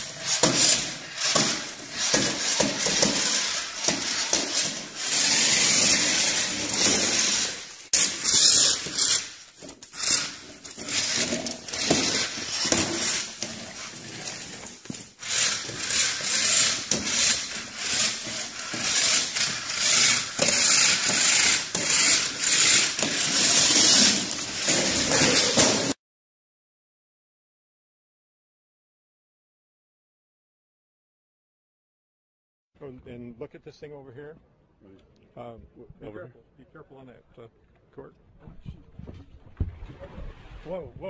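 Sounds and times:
toy car motor whirring: 0:00.0 - 0:25.8.

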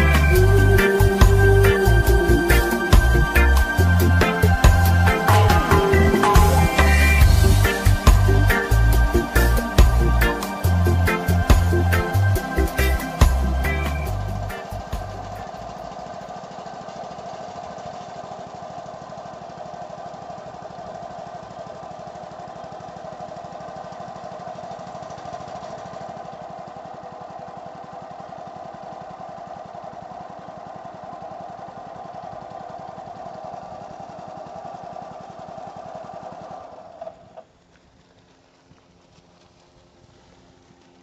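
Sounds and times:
boat engine running: 0:00.0 - 0:26.8.

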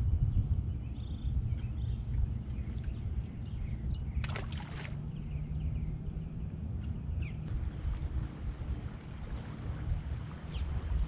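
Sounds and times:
wind rumble: 0:00.0 - 0:11.0
water lapping: 0:04.2 - 0:05.0, 0:07.6 - 0:11.0.

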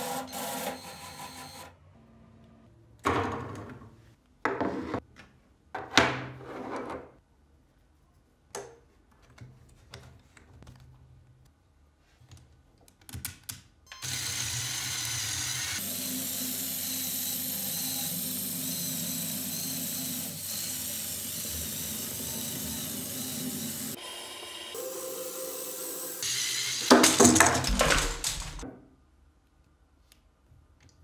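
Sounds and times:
toy car electric motor whirring: 0:13.9 - 0:26.9.

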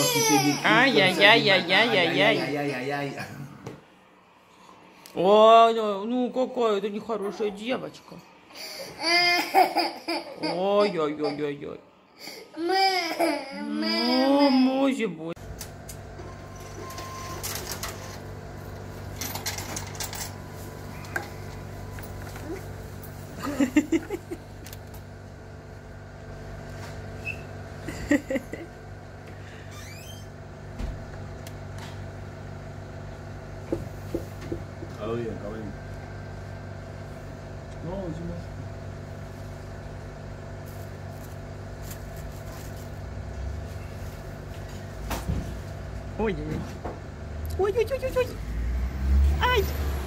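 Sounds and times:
toddler vocalizing: 0:00.0 - 0:01.0
low background hum: 0:00.0 - 0:50.0.

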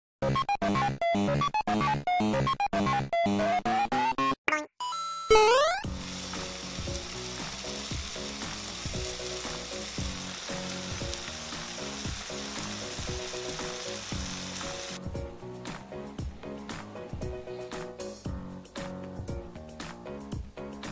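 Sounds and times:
light rhythmic background music: 0:05.5 - 0:20.9
food sizzling on hot plate: 0:05.9 - 0:15.0.

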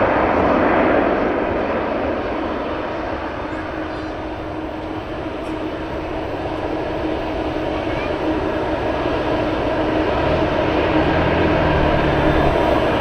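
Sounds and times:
jet engines running: 0:00.0 - 0:13.0
low rumble: 0:10.0 - 0:13.0.

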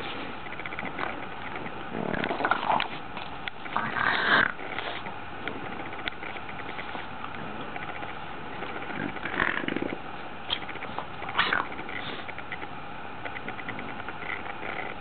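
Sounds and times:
puppy sniffing: 0:00.0 - 0:12.7.

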